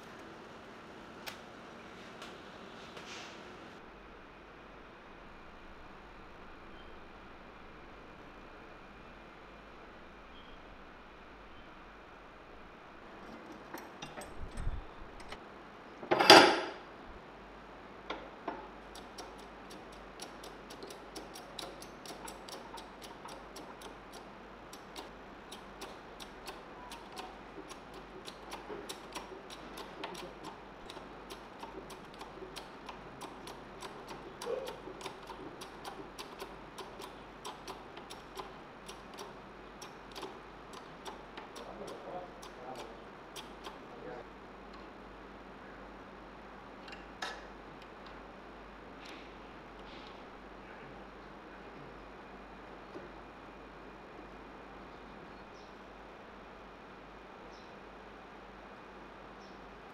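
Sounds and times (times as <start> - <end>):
light metallic ticking and clicking: 18.8 - 43.8.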